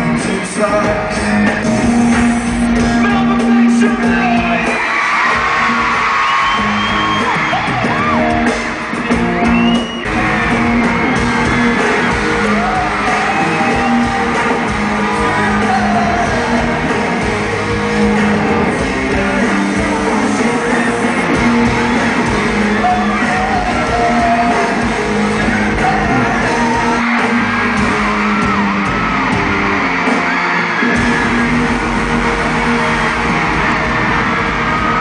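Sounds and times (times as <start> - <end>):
crowd screaming and cheering: 0.0 - 35.0
electric guitar: 0.0 - 35.0
live band music: 0.0 - 35.0
person singing: 11.7 - 27.2.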